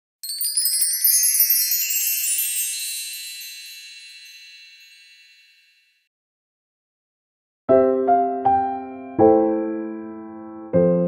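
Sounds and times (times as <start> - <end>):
high tinkling chime: 0.2 - 6.1.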